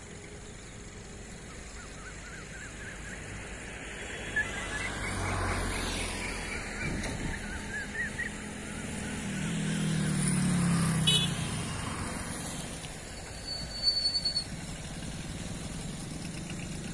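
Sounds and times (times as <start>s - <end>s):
vehicle engine passing: 3.2s - 13.2s.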